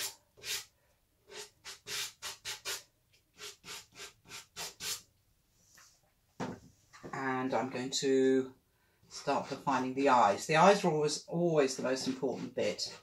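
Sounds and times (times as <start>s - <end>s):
pastel scratching on paper: 0.0s - 0.7s, 1.3s - 2.8s, 3.4s - 5.0s.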